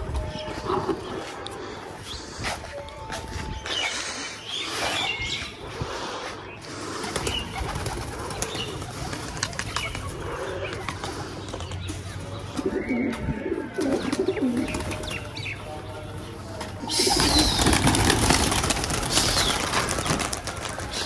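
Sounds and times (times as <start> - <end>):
pigeons cooing: 3.9 - 15.4, 16.8 - 21.0.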